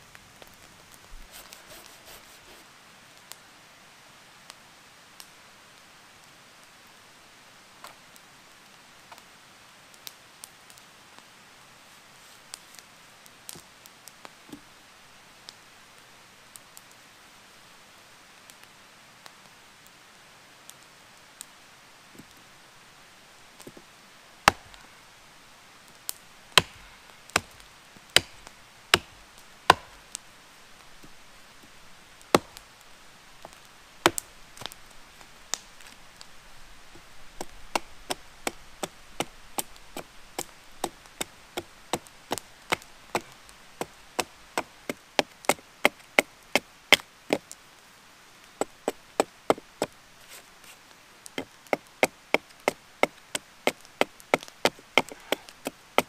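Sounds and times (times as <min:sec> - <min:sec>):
hatchet chopping wood: 0:24.5 - 0:24.8, 0:26.6 - 0:27.6, 0:28.2 - 0:30.0, 0:32.3 - 0:32.6, 0:34.0 - 0:34.7, 0:37.4 - 0:46.3, 0:51.4 - 0:55.8.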